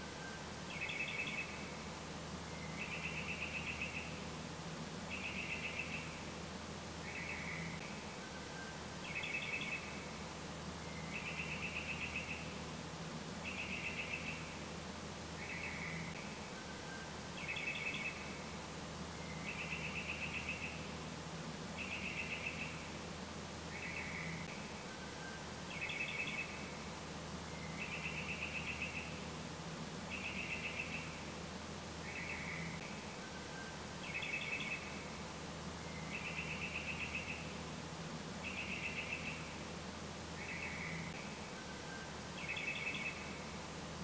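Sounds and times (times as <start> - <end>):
bird singing trilled phrases: 2.5 - 4.3, 5.1 - 6.2, 13.4 - 14.5, 19.2 - 20.9, 30.1 - 31.2, 35.8 - 37.6, 38.4 - 39.5, 41.9 - 43.4.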